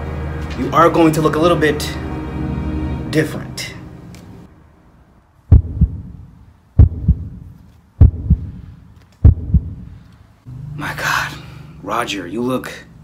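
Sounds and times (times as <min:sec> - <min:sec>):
heartbeat double thumps: 0:05.5 - 0:09.9.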